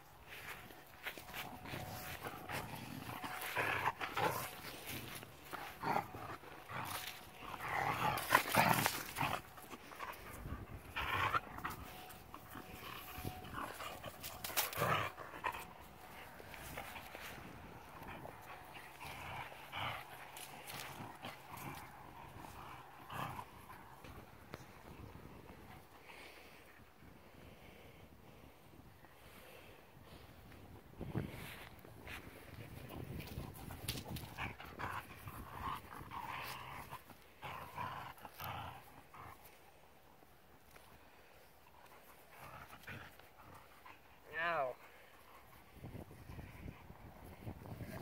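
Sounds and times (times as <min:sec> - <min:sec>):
scuffling in grass: 0:00.0 - 0:24.9
dog panting and growling: 0:00.2 - 0:27.6, 0:31.2 - 0:48.0.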